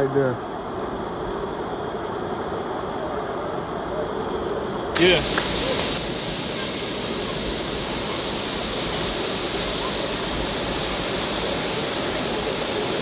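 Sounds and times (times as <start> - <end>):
waterfall rushing over rocks: 4.9 - 13.0.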